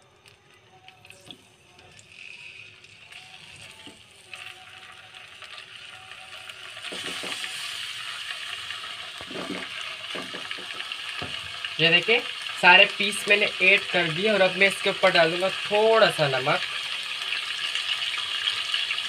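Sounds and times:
chicken sizzling in oil: 0:01.0 - 0:19.0.

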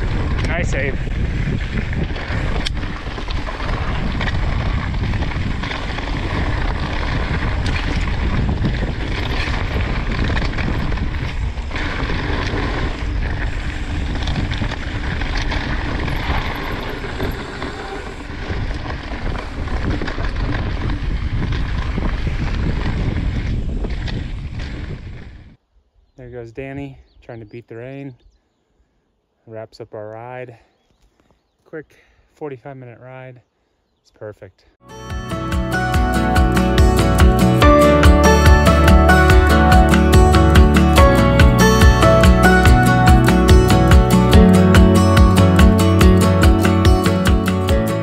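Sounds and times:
wind buffeting microphone: 0:00.0 - 0:27.2.

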